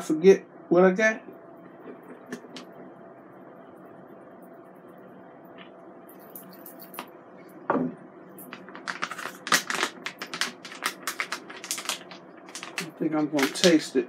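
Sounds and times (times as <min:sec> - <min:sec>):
plastic bag crinkling: 0:08.4 - 0:13.9.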